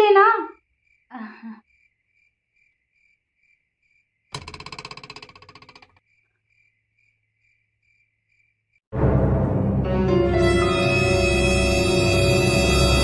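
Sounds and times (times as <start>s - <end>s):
crickets chirping: 0.0s - 8.9s.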